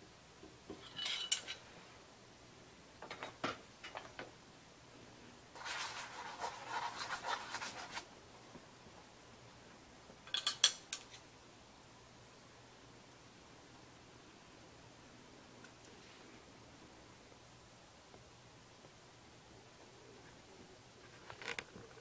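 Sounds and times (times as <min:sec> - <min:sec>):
hot iron scratching paper: 0:05.6 - 0:08.0.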